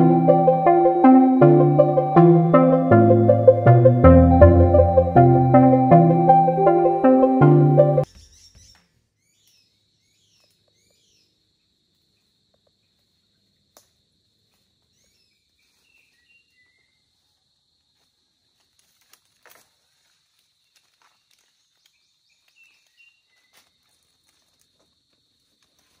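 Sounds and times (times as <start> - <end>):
small birds chirping: 8.0 - 11.4
footsteps crackling on dry litter: 18.0 - 26.0.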